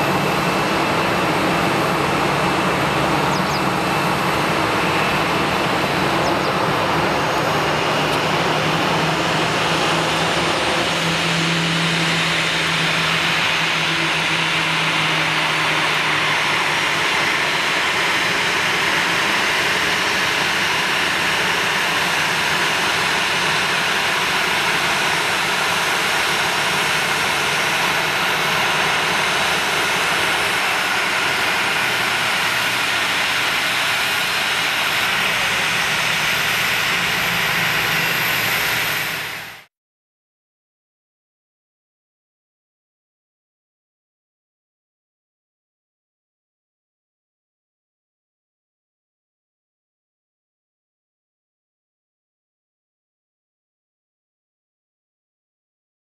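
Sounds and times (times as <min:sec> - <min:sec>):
jet engines idling: 0:00.0 - 0:39.7.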